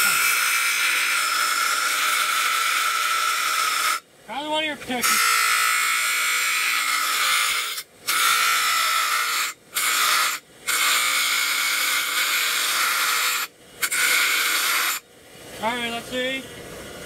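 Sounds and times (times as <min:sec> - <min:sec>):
bench grinder grinding metal: 0:00.0 - 0:04.0, 0:05.0 - 0:15.0.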